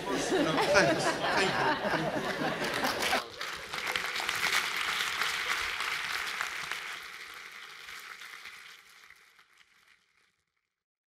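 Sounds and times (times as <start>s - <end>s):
audience applauding in a hall: 0.6s - 10.7s.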